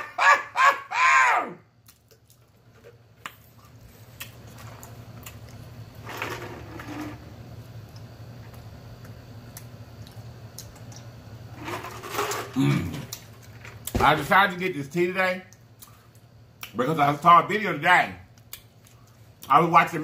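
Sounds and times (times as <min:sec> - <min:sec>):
person gulping drink: 0:12.5 - 0:13.3.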